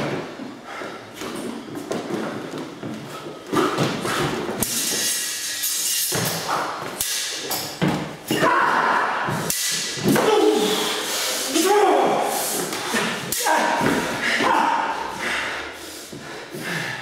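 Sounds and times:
steel blades clashing: 4.6s - 7.8s.

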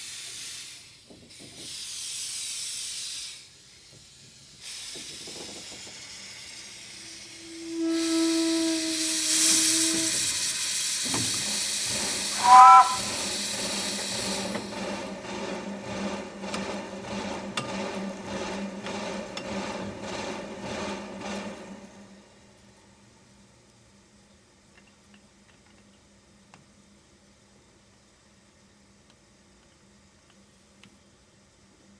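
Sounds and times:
steam hissing: 0.0s - 14.8s
steam whistle chime blast: 7.1s - 10.4s, 12.3s - 13.2s.

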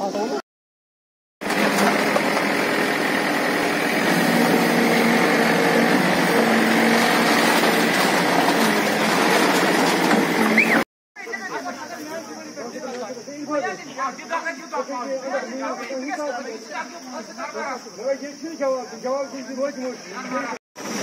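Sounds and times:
backhoe diesel engine running: 1.4s - 10.8s.

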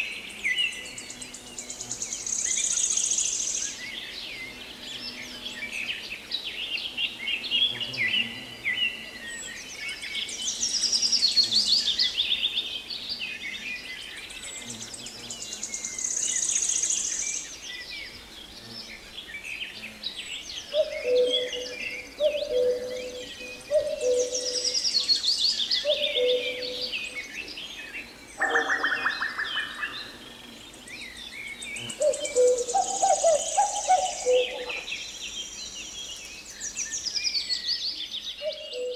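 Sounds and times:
songbirds chirping and singing: 0.0s - 38.9s
lower bird call: 20.7s - 27.3s, 31.8s - 34.9s.

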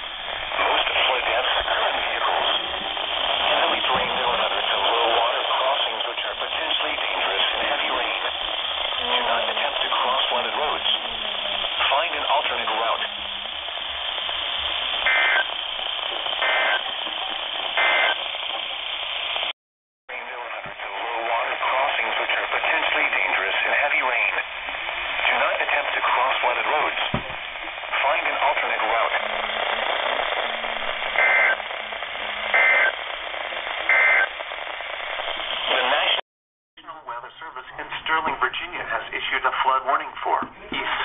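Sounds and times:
radio hiss: 0.0s - 19.5s, 20.1s - 36.2s, 36.8s - 41.0s
warbling two-tone data bursts: 15.0s - 15.5s
warbling digital data tones: 15.0s - 16.8s.

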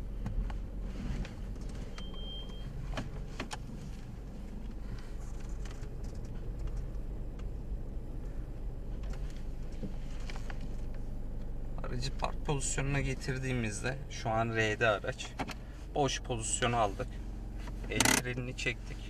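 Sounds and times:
car engine hum: 0.0s - 19.0s
short high beep: 1.9s - 2.7s
gear selector clicks: 4.6s - 7.5s, 17.7s - 18.5s.

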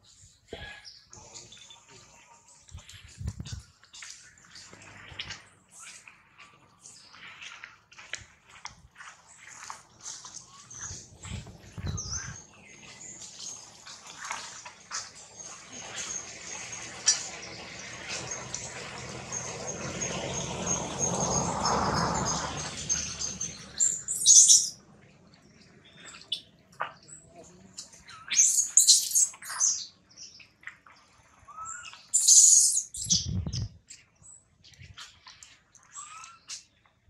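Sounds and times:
high-pitched chirping calls: 19.4s - 24.8s, 27.8s - 30.0s, 31.5s - 33.8s.

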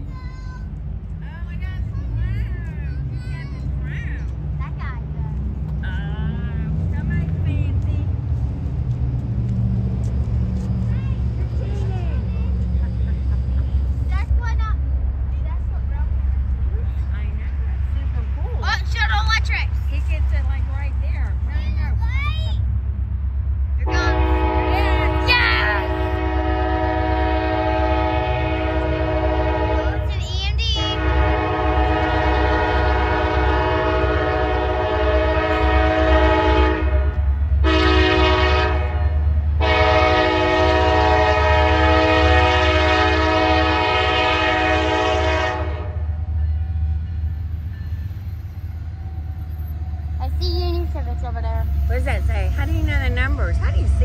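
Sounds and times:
low rumble of train: 0.0s - 54.0s
locomotive air horn blasts: 23.8s - 30.1s, 30.7s - 46.3s.

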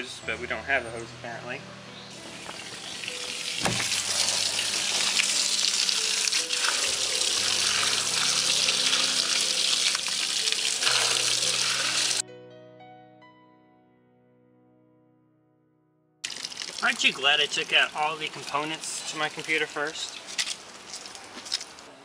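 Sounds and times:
soft background music: 0.0s - 14.4s, 16.3s - 22.0s
water spraying onto metal: 2.4s - 12.2s, 16.2s - 21.2s.

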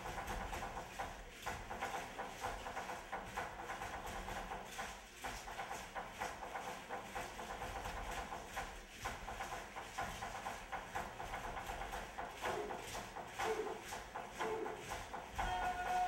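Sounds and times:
held tone: 15.4s - 16.0s.

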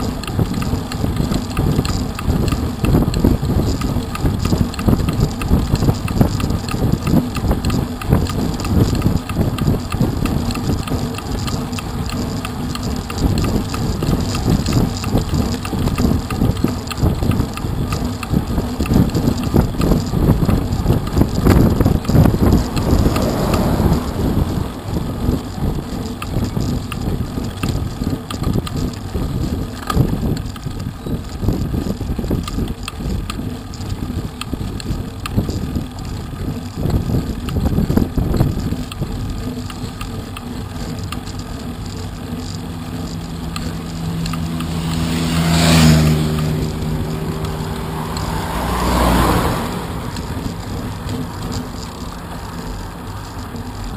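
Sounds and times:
road rumble: 0.0s - 53.9s
wind buffeting microphone: 0.0s - 53.9s
motor vehicle passing: 18.9s - 26.6s, 42.4s - 53.9s.

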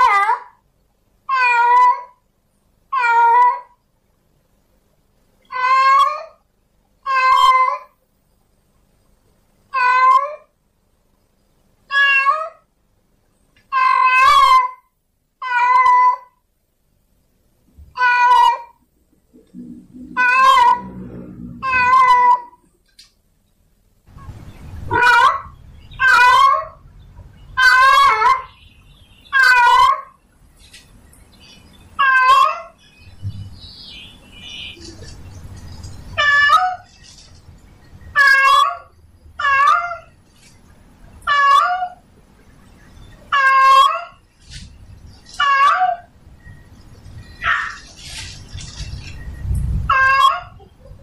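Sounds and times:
low background noise: 0.0s - 51.0s
cat meowing: 1.3s - 2.1s, 11.9s - 12.6s, 13.7s - 14.8s, 15.4s - 16.3s, 17.9s - 18.8s, 20.1s - 21.0s, 21.6s - 22.6s, 24.9s - 26.8s, 32.0s - 32.8s, 38.2s - 40.1s, 49.9s - 50.6s.

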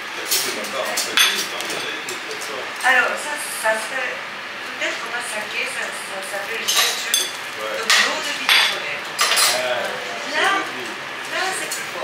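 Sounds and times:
metal utensils clinking on pot: 0.2s - 2.2s, 6.5s - 9.7s.

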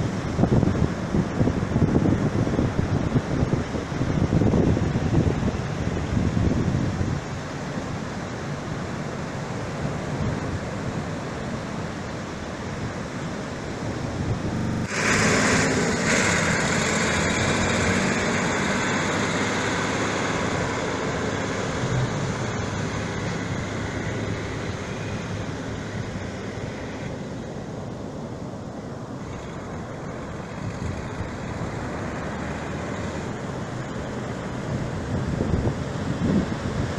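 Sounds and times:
surf washing on beach: 0.0s - 36.9s
wind noise on microphone: 0.0s - 36.9s
tractor diesel engine running: 13.9s - 28.1s.

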